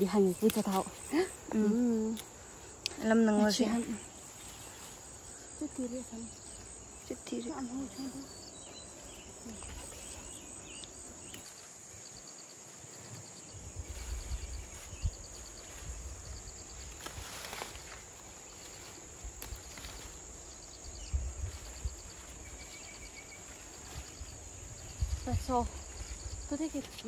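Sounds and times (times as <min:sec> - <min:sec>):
insect chirps: 0:00.0 - 0:27.0
insects droning: 0:00.0 - 0:27.0
rustling: 0:13.0 - 0:20.7.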